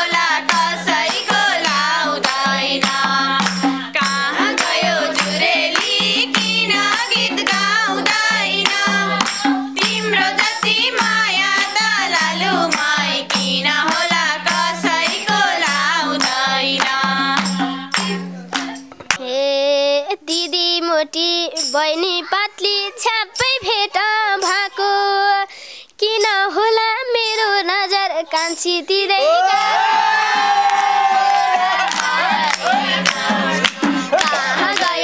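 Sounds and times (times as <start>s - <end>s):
tambourine: 0.0s - 18.9s, 31.1s - 35.0s
women singing folk song: 0.0s - 19.0s, 30.9s - 35.0s
hand clapping: 0.0s - 19.2s, 30.6s - 35.0s
female voice singing: 0.0s - 29.8s, 31.2s - 35.0s.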